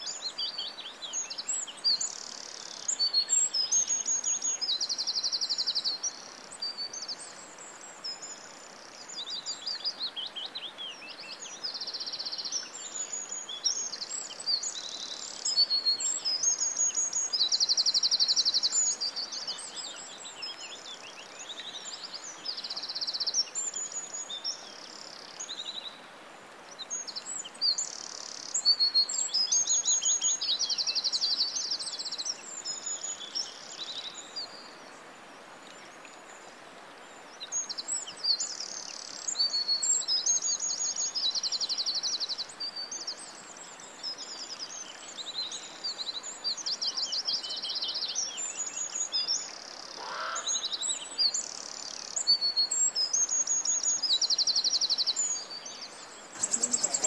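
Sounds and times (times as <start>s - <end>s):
faint steady hiss: 0.0s - 57.0s
small birds chirping: 26.7s - 57.0s.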